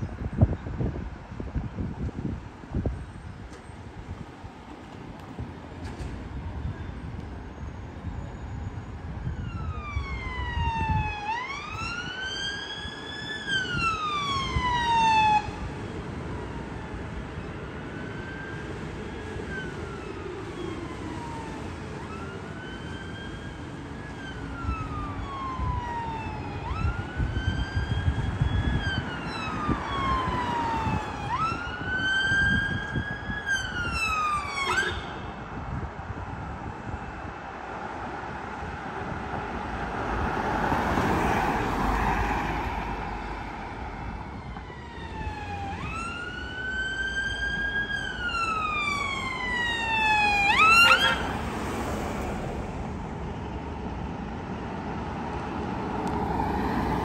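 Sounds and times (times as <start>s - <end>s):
low traffic rumble: 0.0s - 57.0s
emergency siren wailing: 6.3s - 35.8s, 38.6s - 57.0s.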